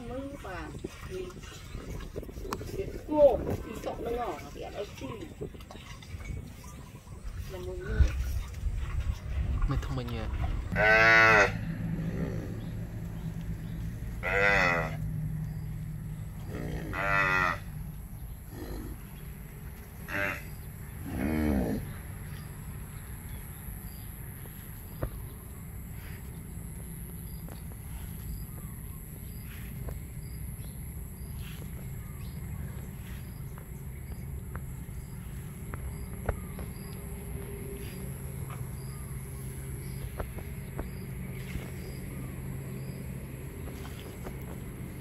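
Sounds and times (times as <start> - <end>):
low rumble: 0.0 - 45.0
cattle mooing: 10.7 - 12.8, 14.2 - 15.1, 16.4 - 17.7, 20.1 - 21.9.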